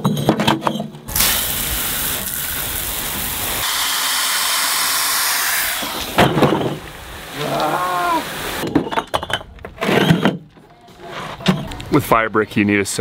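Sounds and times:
hose water splashing into wheelbarrow: 1.1s - 3.7s.

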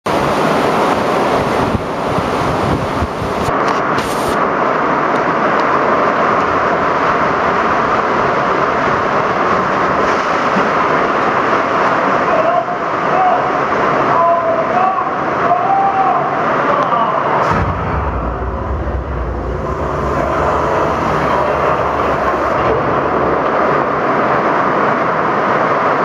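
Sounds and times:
air buffeting microphone: 0.1s - 4.4s, 17.4s - 24.7s
rushing river rapids: 0.1s - 16.7s.

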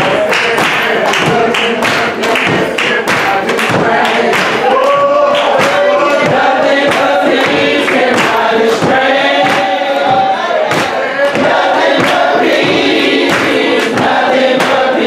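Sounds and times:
gospel singing: 0.0s - 15.0s
people clapping a beat: 0.0s - 15.0s.

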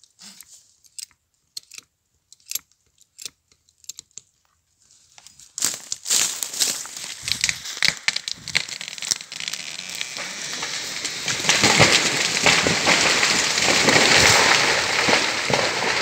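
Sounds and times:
tree falling and crashing: 5.6s - 16.0s.

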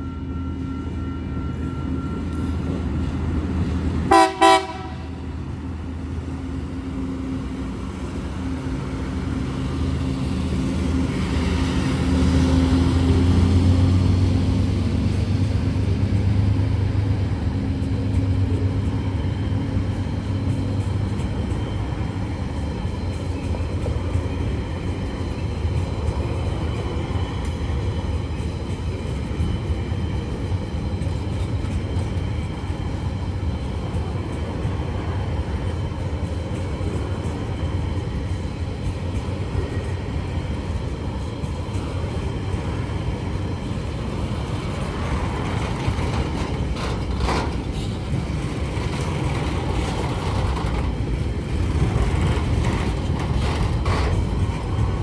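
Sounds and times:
train wheels rumbling on rail: 0.0s - 55.0s
sharp rail clicks: 44.7s - 55.0s.

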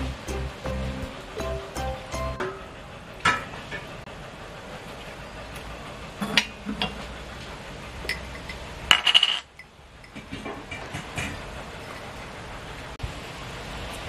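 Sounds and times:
steady low hiss: 0.0s - 5.3s.

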